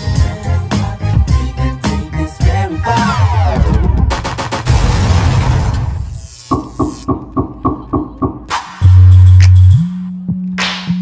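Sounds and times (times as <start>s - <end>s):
dance music over loudspeakers: 0.0s - 4.6s.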